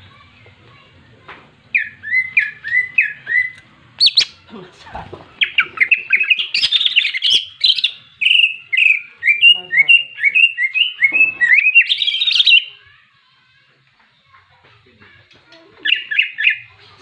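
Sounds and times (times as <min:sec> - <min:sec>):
bird singing chirped notes: 0:01.7 - 0:04.4, 0:05.4 - 0:12.8.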